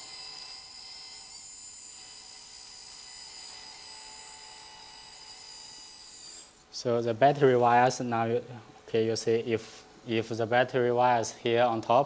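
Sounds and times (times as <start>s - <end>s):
electric pump whine: 0.0s - 6.8s.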